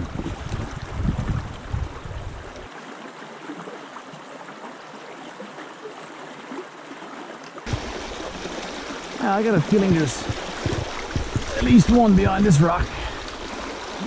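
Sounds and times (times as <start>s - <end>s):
wind rumble on microphone: 0.0s - 2.7s, 9.7s - 13.3s
brook gurgling over rocks: 0.0s - 14.0s.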